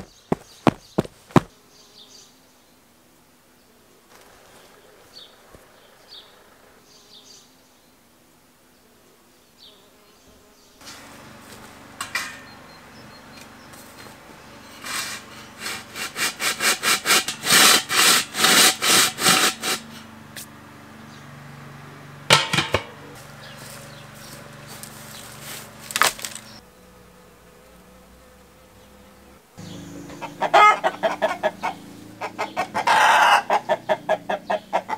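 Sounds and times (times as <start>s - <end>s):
metal tin scraping in soil: 13.8s - 20.1s
glass lid clank: 22.3s - 23.0s.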